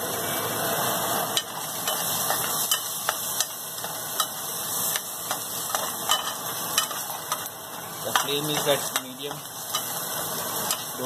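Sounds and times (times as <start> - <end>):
onions sizzling in a frying pan: 0.0 - 11.0
metal spoon scraping a pan: 1.4 - 10.0.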